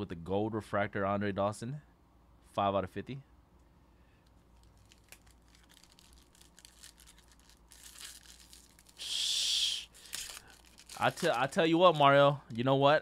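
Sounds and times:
foil wrapper crinkling: 4.2 - 12.2
foil wrapper tearing: 4.5 - 12.0.

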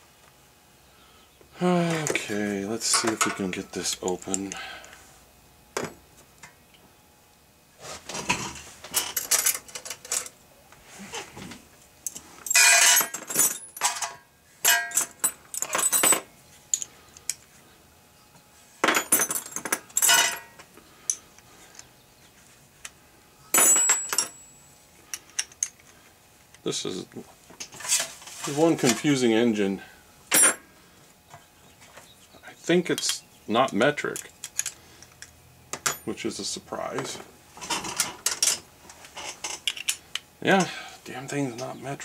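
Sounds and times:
metal tools clinking on metal: 2.8 - 4.6, 8.9 - 10.3, 12.4 - 16.9, 18.8 - 21.2, 23.6 - 25.8, 30.3 - 30.6, 35.7 - 36.2.

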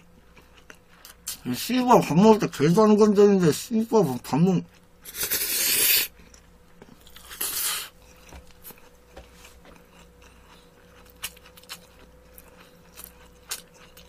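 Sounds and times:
chewing with mouth clicks: 0.0 - 1.5, 4.6 - 14.0
person slurping noodles: 5.0 - 6.1, 7.3 - 7.9.

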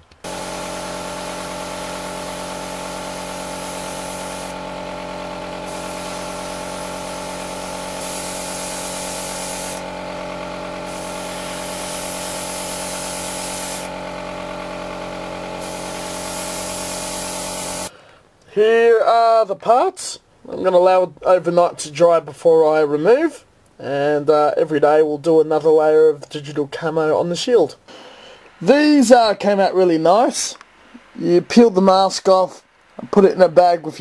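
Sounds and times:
air compressor motor hum: 0.0 - 17.9
airbrush spraying hiss: 0.2 - 10.0, 10.8 - 14.1, 15.6 - 17.9.

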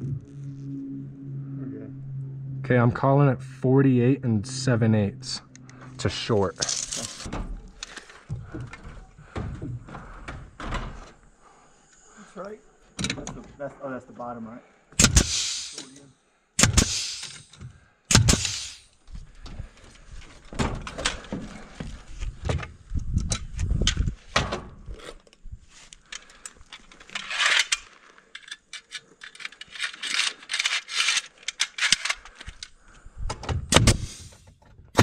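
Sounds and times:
tools and lumber clattering: 6.6 - 11.2, 19.4 - 22.8, 26.1 - 32.7
cordless driver bursts: 15.0 - 15.9, 16.6 - 18.9
nail gun firing: 15.0 - 15.9, 16.6 - 18.9, 33.7 - 34.3.

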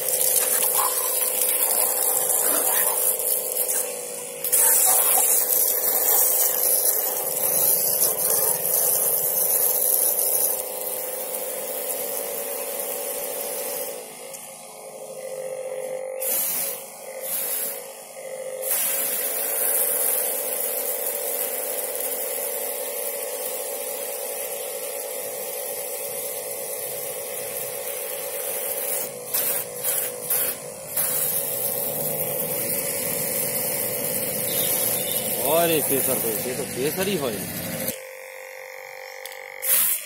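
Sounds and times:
water jet hissing: 0.0 - 13.8, 16.2 - 17.9, 18.6 - 22.2, 26.8 - 38.0, 39.6 - 40.0
electric pump humming: 0.0 - 40.0.

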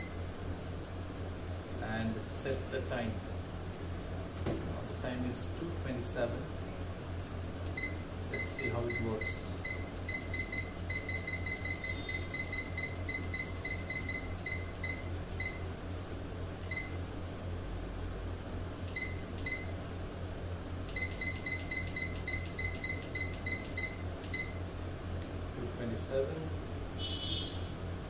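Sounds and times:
steady low hum: 0.0 - 28.0
short high beeps: 7.8 - 15.6, 21.0 - 24.6.

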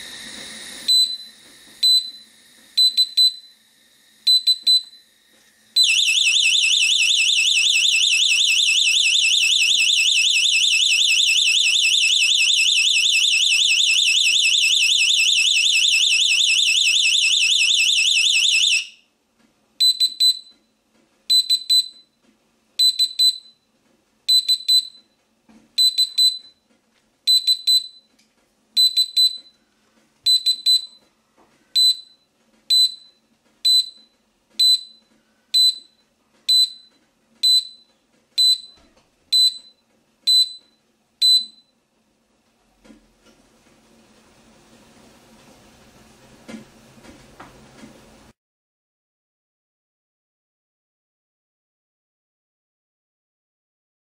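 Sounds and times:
warbling high-pitched alarm tone: 5.8 - 19.0.

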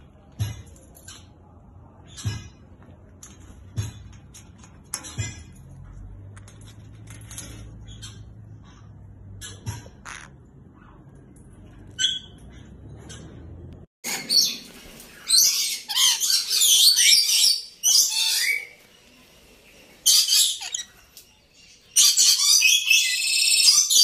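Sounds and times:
lorikeets screeching: 15.3 - 18.8, 20.0 - 21.0, 21.8 - 24.0.

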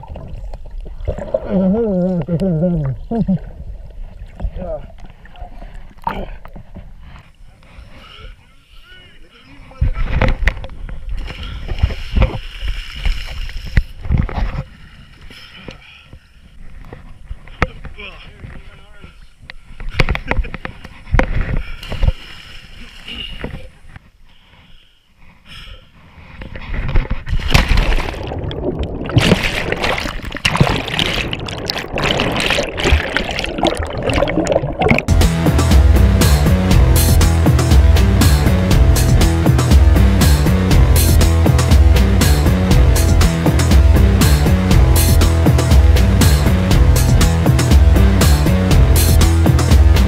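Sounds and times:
bubbling water underwater: 0.0 - 6.6, 27.6 - 35.1
water splashing: 0.0 - 6.8, 27.3 - 35.2
water splashing and sloshing: 0.0 - 7.8, 9.7 - 18.7, 19.6 - 24.0, 26.4 - 35.2.

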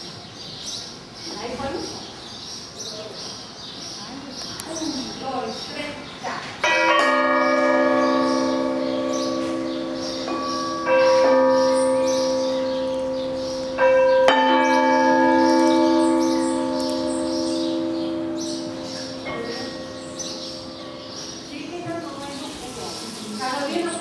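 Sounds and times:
deep struck metal bell ringing: 6.7 - 21.9.

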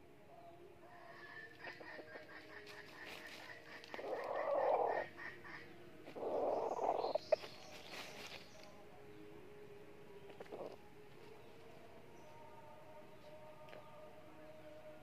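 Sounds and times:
junglefowl calling: 0.9 - 7.5.

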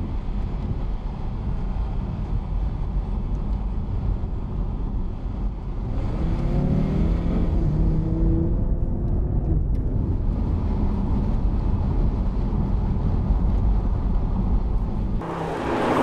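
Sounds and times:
car engine rumbling: 0.0 - 16.0
road and wind noise: 0.0 - 16.0
car engine driving past: 15.2 - 16.0.

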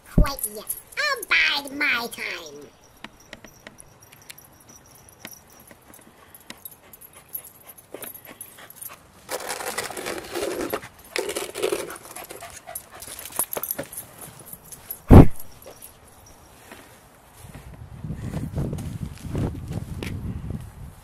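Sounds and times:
dog panting: 5.5 - 9.0, 11.7 - 14.2.

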